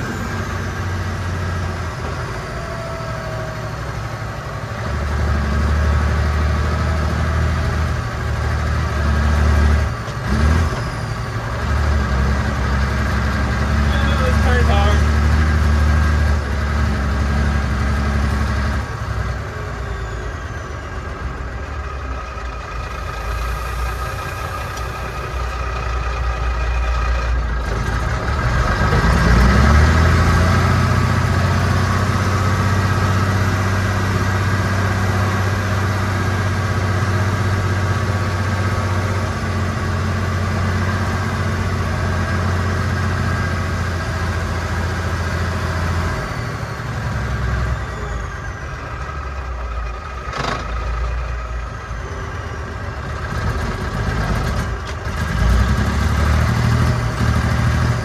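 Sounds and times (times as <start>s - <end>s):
diesel truck engine from inside cab: 0.0s - 58.0s.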